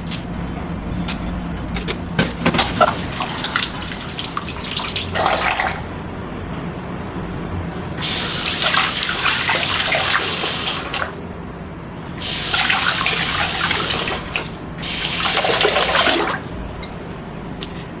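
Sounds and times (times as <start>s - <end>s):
faucet water splashing into sink: 2.8s - 5.8s, 8.0s - 11.1s, 12.3s - 16.4s.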